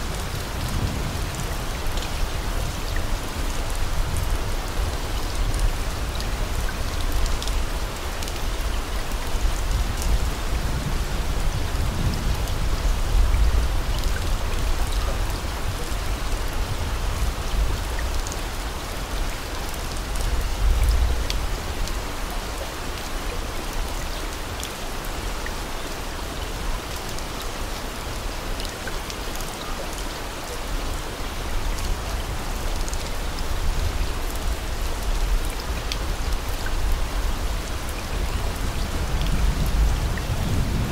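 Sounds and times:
steady rain hiss: 0:00.0 - 0:40.9.

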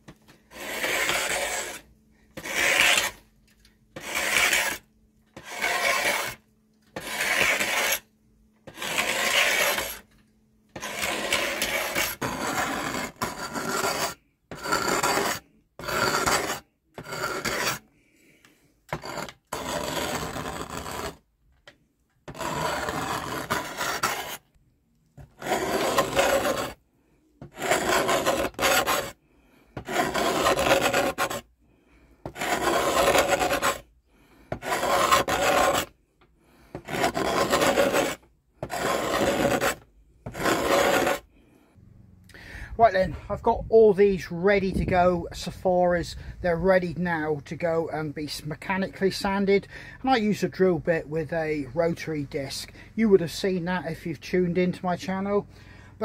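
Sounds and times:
hand tool scraping wood: 0:00.1 - 0:03.2, 0:03.9 - 0:21.2, 0:22.2 - 0:24.5, 0:25.2 - 0:26.8, 0:27.4 - 0:31.5, 0:32.2 - 0:33.9, 0:34.5 - 0:36.0, 0:36.6 - 0:41.3.

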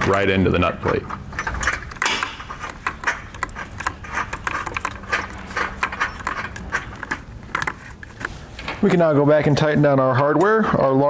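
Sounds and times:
metallic clicks of bolt and washers: 0:00.8 - 0:07.8.

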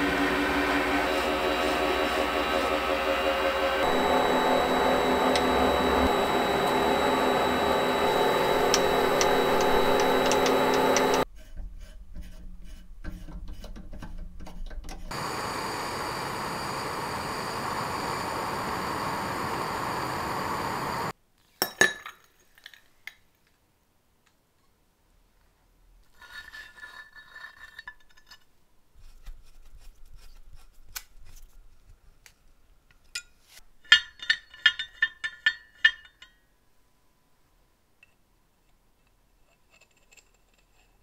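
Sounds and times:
drill bit boring into steel: 0:00.0 - 0:11.2
metal lathe running: 0:00.0 - 0:11.2.

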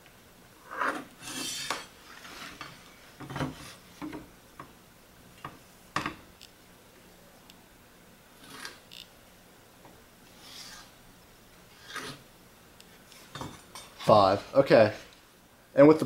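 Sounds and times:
metal square sliding over wood: 0:00.6 - 0:03.8, 0:10.4 - 0:10.9, 0:11.7 - 0:12.2
pencil scraping: 0:10.4 - 0:10.9, 0:11.8 - 0:12.2.

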